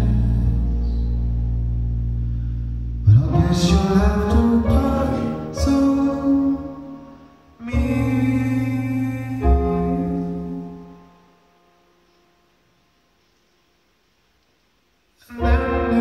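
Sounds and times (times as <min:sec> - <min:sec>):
sustained keyboard chords: 0:00.0 - 0:11.8, 0:15.3 - 0:16.0.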